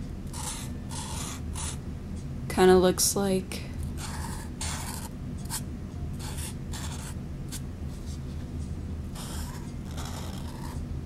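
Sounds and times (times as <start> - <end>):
steady low hum: 0.0 - 11.0
marker scratching on paper: 0.3 - 1.8, 4.0 - 5.6, 6.2 - 7.2, 9.2 - 10.8.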